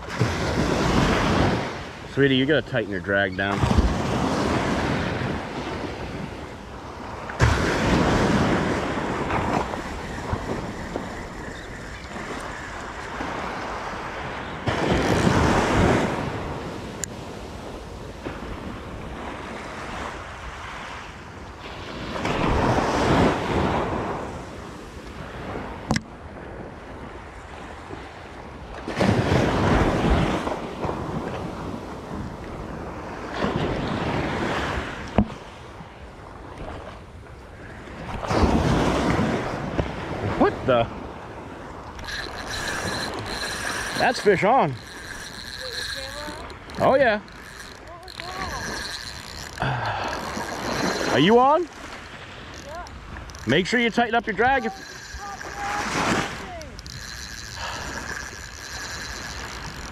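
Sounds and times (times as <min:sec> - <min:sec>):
surf waves breaking: 0:00.0 - 0:59.9
wind on microphone: 0:00.0 - 0:59.9
sharp clicks: 0:41.9 - 0:59.9.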